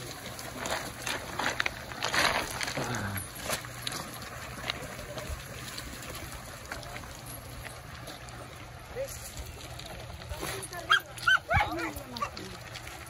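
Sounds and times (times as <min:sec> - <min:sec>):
footsteps on loose cobbles: 0:00.0 - 0:13.0.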